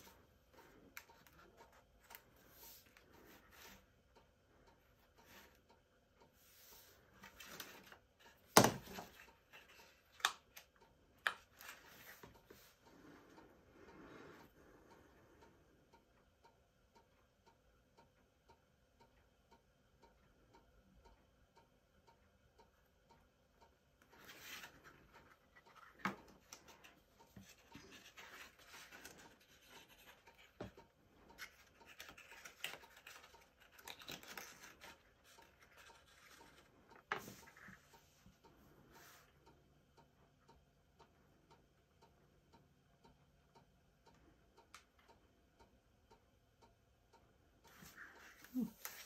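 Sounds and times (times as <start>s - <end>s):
faint regular ticking: 9.1s - 49.0s
cardstock rustling: 25.6s - 30.7s, 31.4s - 37.4s.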